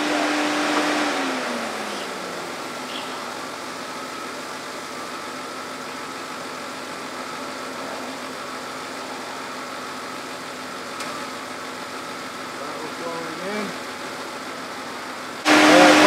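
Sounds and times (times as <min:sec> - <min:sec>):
car engine idling: 0:00.0 - 0:16.0
cooling fan hum: 0:13.2 - 0:16.0.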